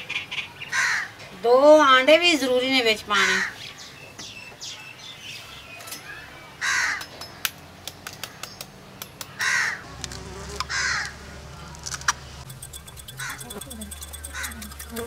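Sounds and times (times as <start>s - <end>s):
crow cawing: 0.7s - 1.1s, 6.6s - 7.1s, 9.4s - 9.8s, 10.7s - 11.2s
knife tapping egg shell: 12.4s - 15.0s.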